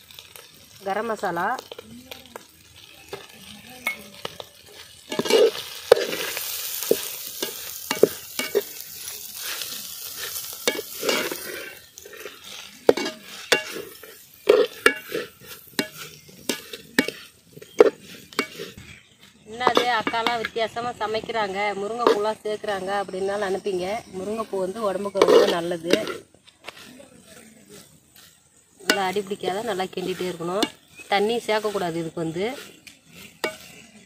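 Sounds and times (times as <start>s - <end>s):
food sizzling: 0.0s - 34.0s
ladle scraping metal pot: 3.1s - 20.6s, 24.0s - 27.0s, 27.7s - 34.0s
ladle tapping pot: 12.9s - 15.2s.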